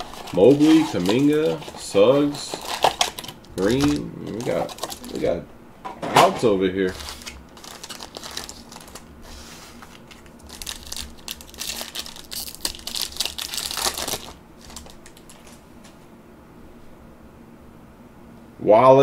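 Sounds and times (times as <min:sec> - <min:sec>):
plastic wrapper crinkling: 0:00.0 - 0:05.2, 0:06.8 - 0:15.6.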